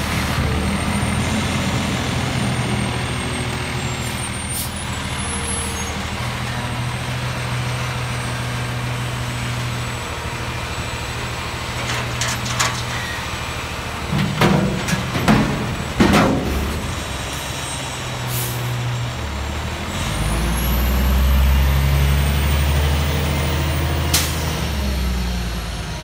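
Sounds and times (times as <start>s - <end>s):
garbage truck diesel engine: 0.0s - 26.0s
hydraulic forks lifting bin: 11.6s - 17.6s
bin knocks and rattles: 11.8s - 13.0s, 14.1s - 17.2s.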